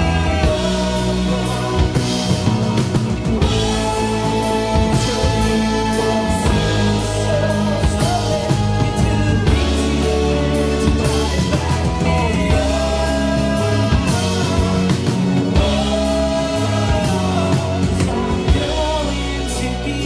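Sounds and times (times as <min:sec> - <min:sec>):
lead vocal singing: 0:00.0 - 0:20.0
rock band playing live: 0:00.0 - 0:20.0.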